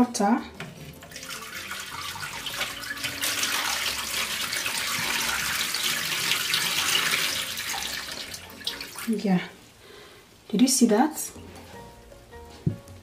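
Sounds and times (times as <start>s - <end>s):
water trickling into plastic basin: 0.6s - 9.3s.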